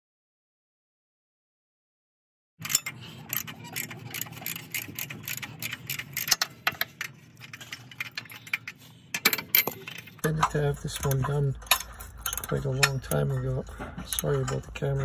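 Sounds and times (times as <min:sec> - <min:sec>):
ratchet wrench clicking: 0:02.6 - 0:08.6
metallic clacks of tools: 0:02.6 - 0:15.0.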